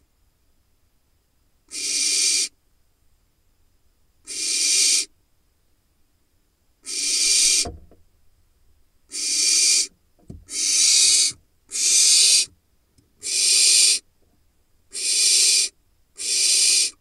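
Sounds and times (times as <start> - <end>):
owl chick hissing screech: 1.7 - 2.6, 4.3 - 5.1, 6.8 - 7.7, 9.1 - 9.9, 10.5 - 12.5, 13.2 - 14.0, 14.9 - 17.0.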